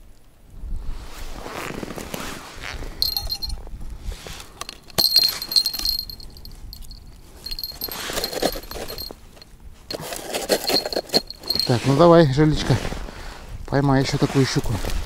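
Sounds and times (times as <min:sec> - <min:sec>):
metallic clinking and jingling: 0:03.0 - 0:03.6, 0:04.5 - 0:12.2
short high ringing tones: 0:03.0 - 0:03.6.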